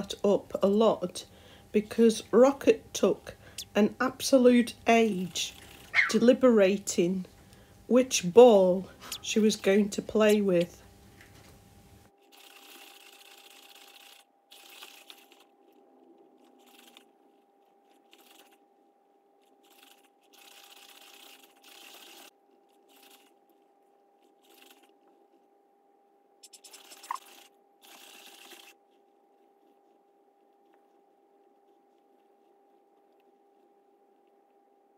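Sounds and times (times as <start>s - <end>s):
faint steady hum: 0.0s - 34.9s.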